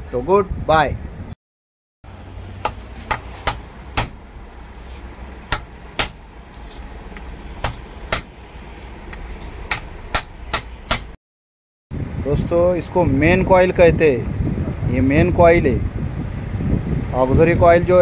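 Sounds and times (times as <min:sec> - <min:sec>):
hammer striking metal: 0:02.6 - 0:04.6, 0:05.5 - 0:06.6, 0:07.6 - 0:08.7, 0:09.7 - 0:11.2.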